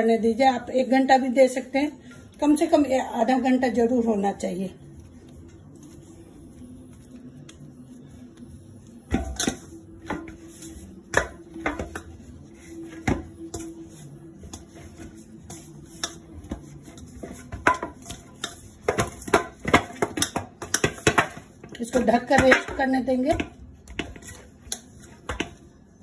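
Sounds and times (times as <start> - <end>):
dough thumping against steel bowl: 9.1 - 12.2, 12.8 - 13.7, 14.4 - 25.7.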